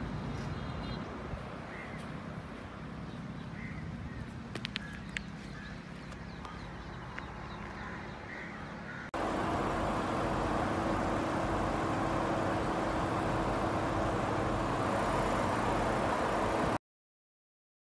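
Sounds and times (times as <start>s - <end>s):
outdoor background noise: 0.0s - 16.8s
bird calling: 0.3s - 2.2s, 3.1s - 9.1s
low hum: 9.2s - 16.8s.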